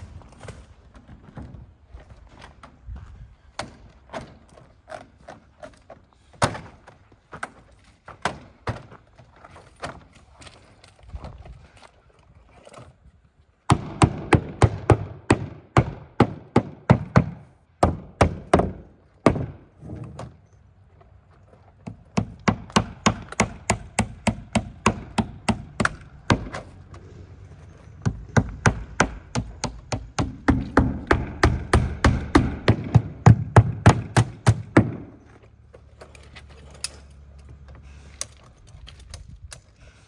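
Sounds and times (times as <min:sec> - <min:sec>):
hammer driving nails: 0:21.8 - 0:26.8, 0:28.0 - 0:35.2.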